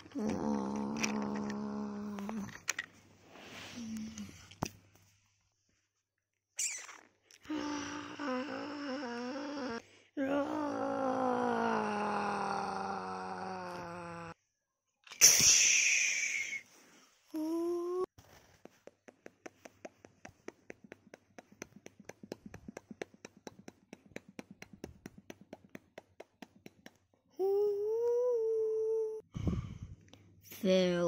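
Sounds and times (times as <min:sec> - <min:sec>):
person humming wavering note: 0:07.5 - 0:14.3, 0:27.4 - 0:29.2.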